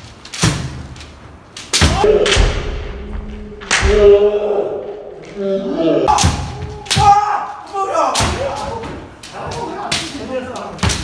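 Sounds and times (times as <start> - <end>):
bamboo swords striking armour: 1.6 - 2.9, 6.1 - 7.4.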